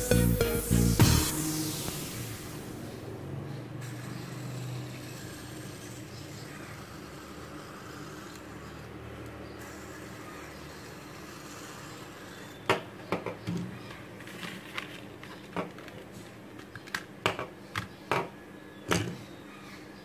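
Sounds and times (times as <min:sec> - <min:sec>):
low hiss: 0:00.0 - 0:03.2
plastic packaging handled on a table: 0:14.2 - 0:17.0.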